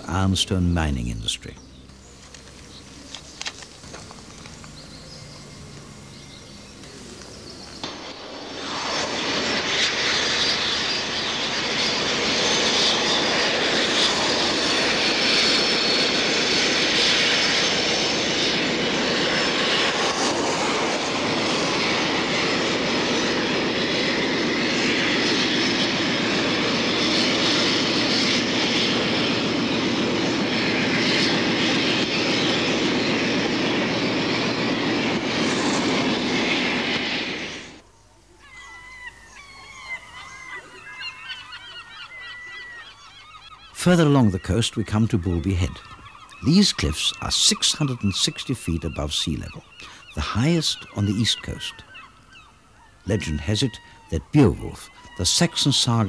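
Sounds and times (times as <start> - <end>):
diesel train engine drone: 0.0 - 37.8.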